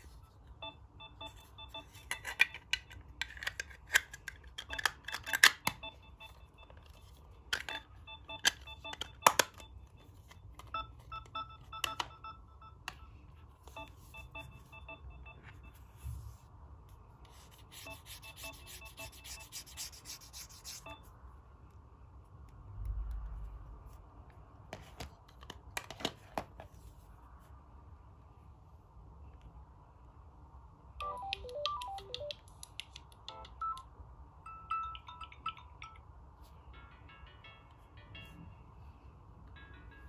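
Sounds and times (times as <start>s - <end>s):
phone alarm beeping: 0.6s - 2.3s, 4.7s - 16.0s, 17.8s - 19.7s
clicks and rubbing of phones: 1.2s - 14.8s, 17.1s - 21.0s.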